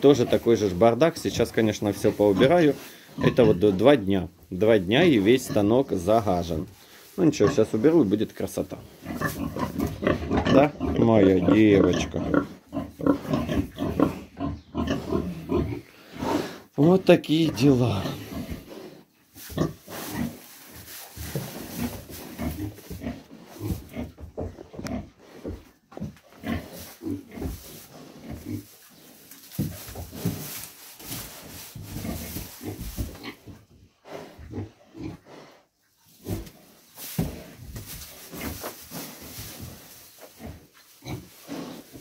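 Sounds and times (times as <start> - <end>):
pig grunting: 0.0 - 4.0, 9.0 - 18.9
straw rustling: 0.0 - 15.8, 16.8 - 24.2, 26.2 - 33.6, 35.9 - 42.0.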